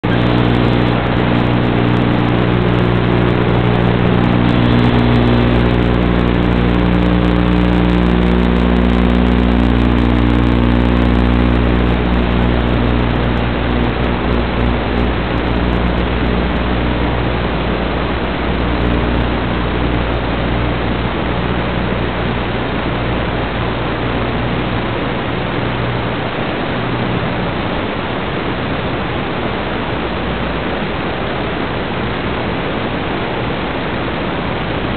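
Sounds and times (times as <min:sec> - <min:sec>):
drone propellers buzzing: 0:00.0 - 0:27.6
steady hiss: 0:00.0 - 0:34.9.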